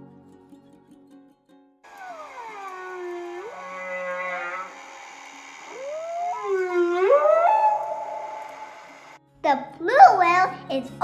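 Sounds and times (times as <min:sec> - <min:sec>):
whale song calls: 0:01.9 - 0:09.2.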